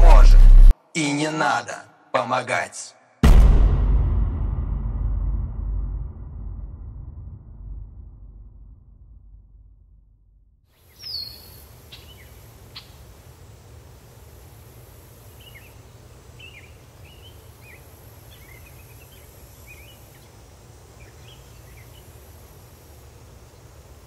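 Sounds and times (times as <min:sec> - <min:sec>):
low rumble: 0:00.0 - 0:00.7, 0:03.2 - 0:10.6
small birds chirping: 0:10.7 - 0:13.3, 0:14.2 - 0:22.6.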